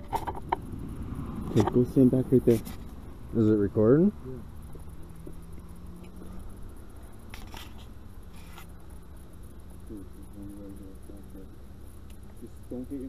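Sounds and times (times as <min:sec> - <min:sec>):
camera handling rustles and knocks: 0:00.0 - 0:00.6
low background hum: 0:00.0 - 0:13.0.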